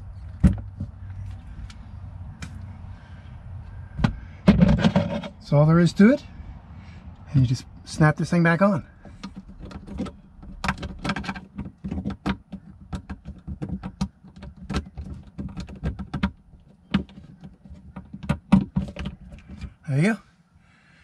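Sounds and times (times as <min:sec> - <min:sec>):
plastic plate clicking and snapping: 0:09.2 - 0:19.7.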